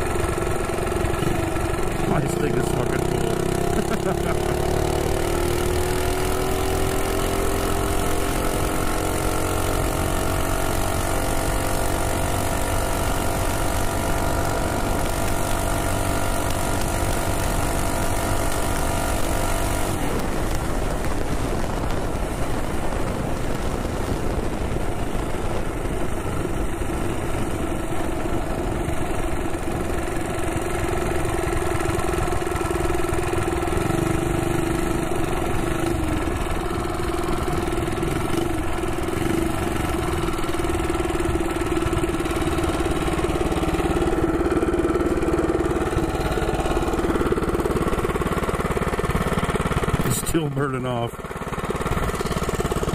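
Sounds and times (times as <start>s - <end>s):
minibike engine revving: 0.0s - 52.9s
wind rushing over microphone: 20.0s - 28.8s.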